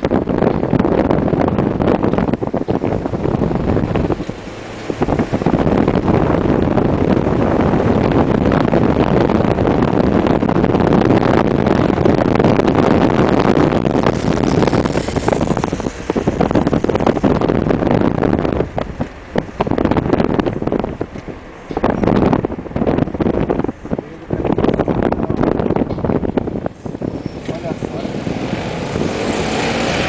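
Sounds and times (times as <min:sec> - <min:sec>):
vehicle road noise: 0:00.0 - 0:30.0
wind buffeting microphone: 0:00.0 - 0:30.0.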